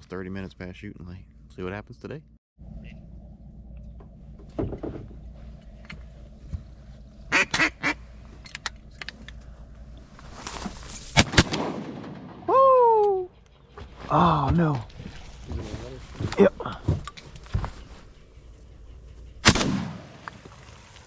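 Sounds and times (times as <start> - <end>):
duck quacking: 7.3 - 8.0
sharp cracks: 11.1 - 12.6, 19.4 - 20.6.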